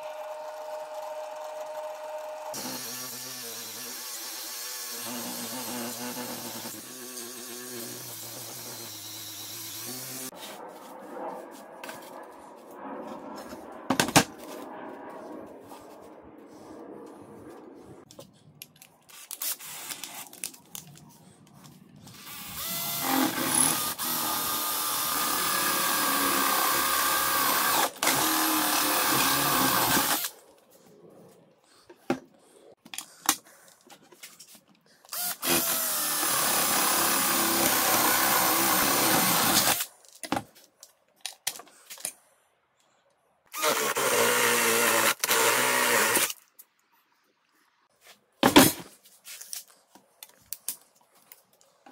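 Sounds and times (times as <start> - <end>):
cordless drill boring: 0.0 - 10.3, 19.1 - 20.2, 22.1 - 30.3, 35.1 - 39.8, 43.5 - 46.4.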